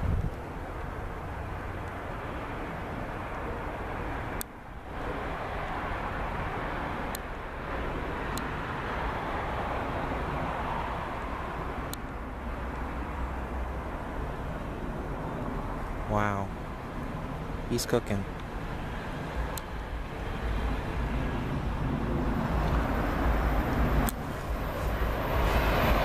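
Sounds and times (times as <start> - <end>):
train rumbling: 18.6 - 26.0.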